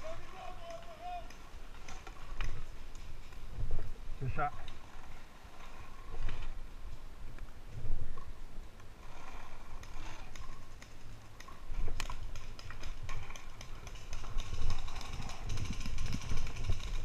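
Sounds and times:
paintball gun clicks and pops: 1.2 - 3.4, 9.8 - 17.0.

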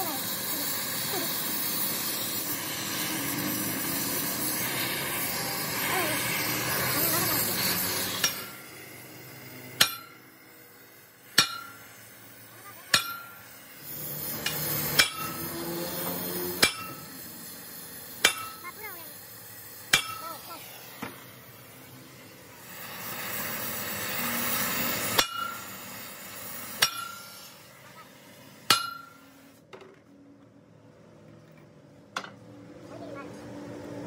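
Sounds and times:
hammer striking steel: 7.6 - 12.2, 12.8 - 18.8, 19.6 - 21.3, 24.7 - 27.6, 28.6 - 29.3.

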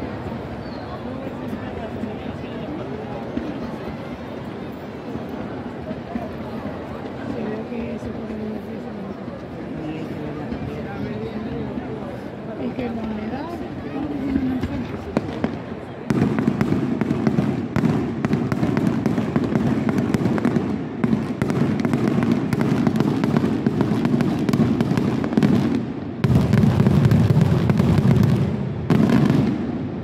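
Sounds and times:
fireworks bangs and crackling: 0.0 - 30.0.

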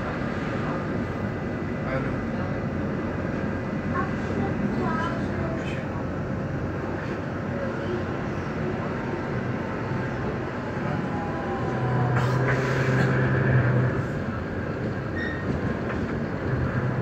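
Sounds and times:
train rolling noise from inside: 0.0 - 17.0
faint wheel squeals: 15.1 - 15.6.

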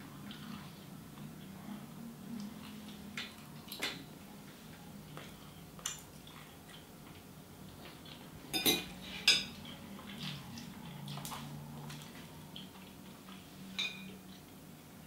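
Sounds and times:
metal fork clinking on ceramic bowl: 8.5 - 9.5.

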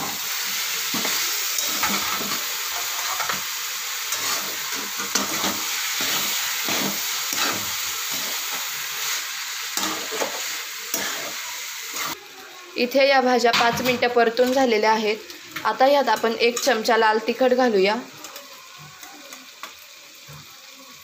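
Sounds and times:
vegetables sizzling in a pan: 0.0 - 21.0
spatula scraping a pan: 0.1 - 12.2.

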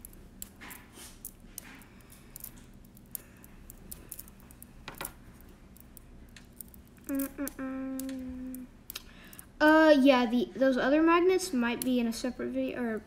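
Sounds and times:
magnet balls clicking: 0.0 - 9.8
person humming: 7.0 - 8.8.

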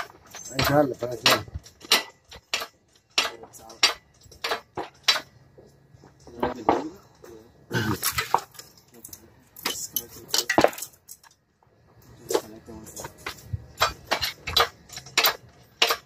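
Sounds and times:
hoist chain knocking: 0.0 - 7.2, 12.4 - 16.0
metal tools clinking: 0.0 - 16.0.

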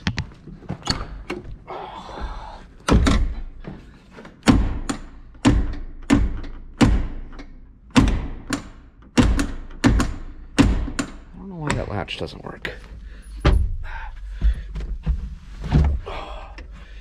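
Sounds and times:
sharp thunks against truck door: 2.8 - 3.5.

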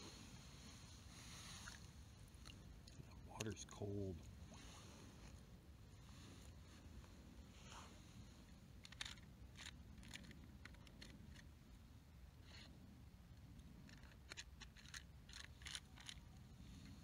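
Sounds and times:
low steady rumble: 0.0 - 17.0
small clicks and ticks: 8.8 - 11.5, 13.3 - 17.0.

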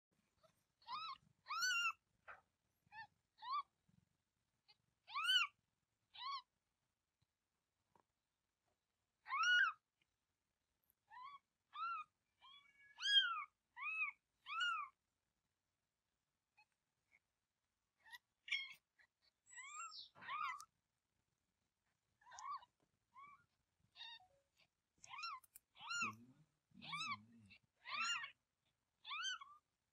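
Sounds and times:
kitten mewing: 25.0 - 28.4.

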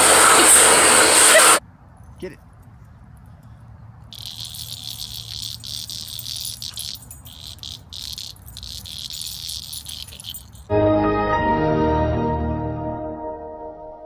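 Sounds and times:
insects chirring: 4.1 - 10.7
music: 10.7 - 14.0.

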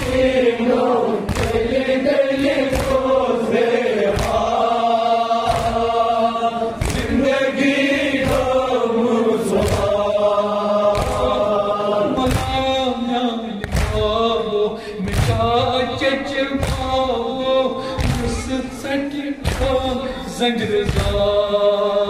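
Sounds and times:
men chanting in unison: 0.0 - 22.0
hands beating on chests: 1.3 - 1.8, 2.4 - 3.1, 4.1 - 4.6, 5.4 - 6.0, 6.8 - 7.3, 10.9 - 11.4, 12.2 - 12.7, 13.6 - 14.2
man chanting: 11.2 - 22.0.

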